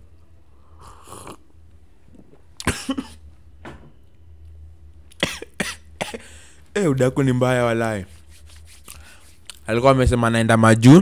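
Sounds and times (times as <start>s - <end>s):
man sipping from a cup: 0.8s - 1.5s
man coughing: 2.6s - 3.2s, 5.2s - 6.5s.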